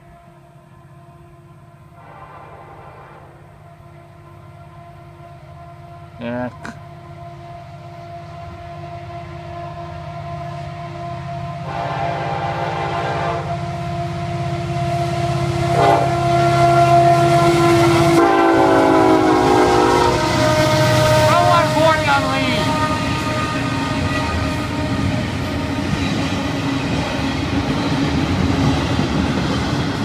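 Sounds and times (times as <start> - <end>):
locomotive horn blasts: 0.8 - 6.1, 8.4 - 13.7, 14.3 - 25.8.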